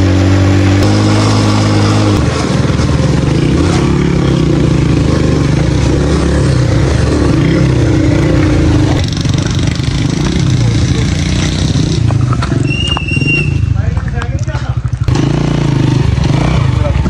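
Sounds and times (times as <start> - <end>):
small motorcycle engine running: 0.0 - 17.0.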